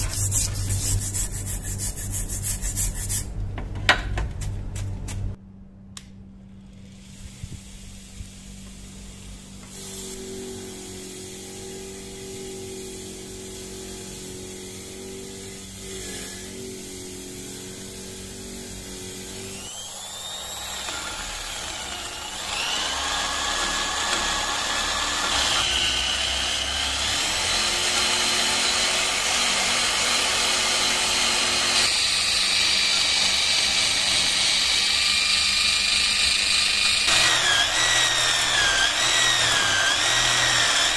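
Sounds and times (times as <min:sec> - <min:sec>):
bench grinder humming: 0:06.8 - 0:40.9
electric drill grinding metal: 0:09.1 - 0:40.9.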